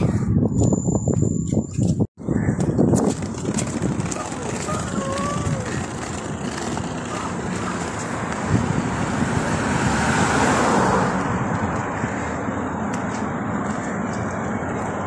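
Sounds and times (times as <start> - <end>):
rush of passing cars: 3.0 - 15.0.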